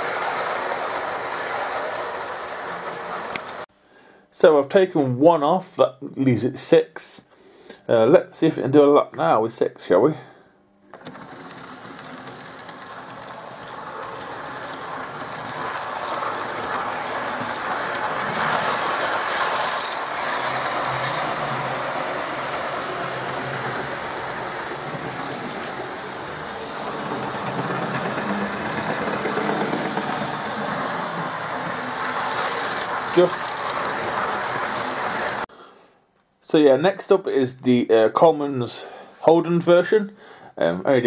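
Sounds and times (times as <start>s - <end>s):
model train wheels on rails: 0.0s - 3.7s, 10.9s - 35.5s
electric motor whine: 10.9s - 35.4s.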